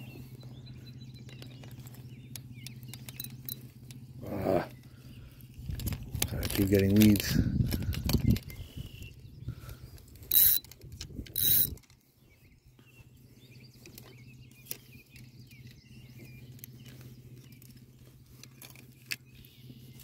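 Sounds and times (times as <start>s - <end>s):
fishing reel whirring: 10.2s - 11.9s.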